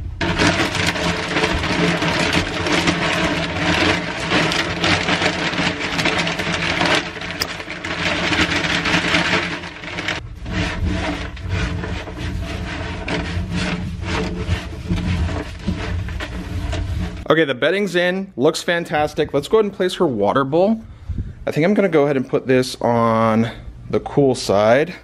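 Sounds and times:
wood chips pouring and rustling: 0.0s - 17.2s
plastic bag crinkling: 0.2s - 10.2s
hand raking wood chips: 0.2s - 17.2s.

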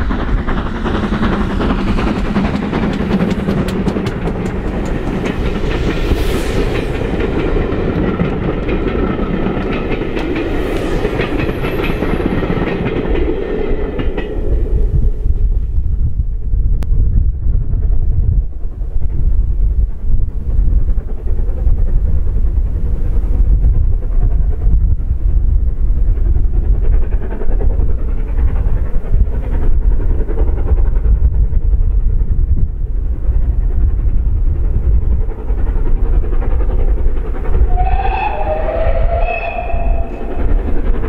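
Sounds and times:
steam train rumbling past: 0.0s - 41.0s
steam whistle: 37.6s - 40.6s.

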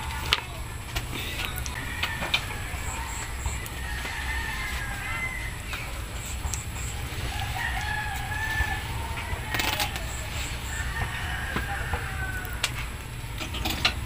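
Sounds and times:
rooster crowing: 0.0s - 14.0s
steady low rumble: 0.0s - 14.0s.

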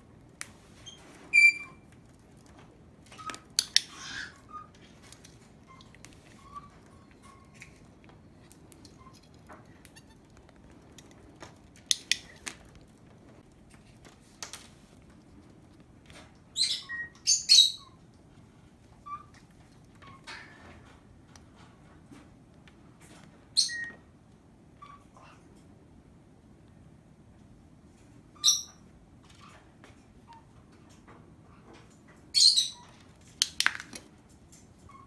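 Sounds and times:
bird chirping: 16.5s - 18.0s, 23.6s - 24.0s, 28.4s - 28.8s, 32.3s - 33.0s.

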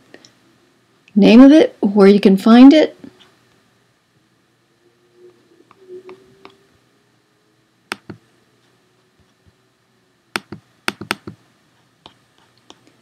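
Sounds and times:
computer mouse clicking: 7.9s - 8.2s, 10.4s - 11.4s.

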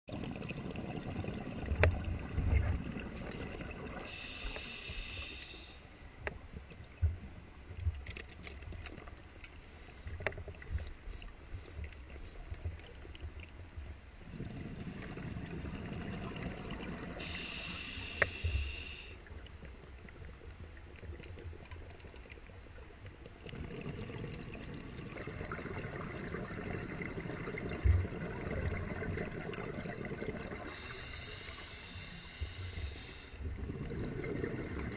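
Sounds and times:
rumbling exhaled bubbles: 0.1s - 4.1s, 14.2s - 17.3s, 23.3s - 31.0s, 33.4s - 34.9s
scuba regulator hissing inhalations: 4.1s - 5.9s, 17.2s - 19.2s, 30.6s - 33.5s.

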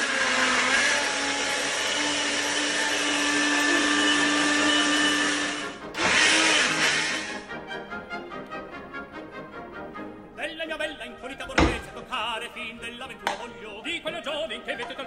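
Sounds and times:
blender motor humming: 0.0s - 7.5s.

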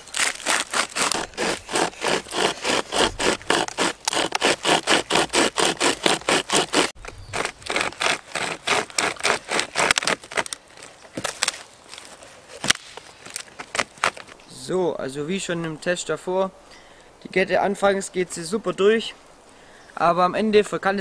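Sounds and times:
hand chainsaw rasping through wood: 0.0s - 10.5s.

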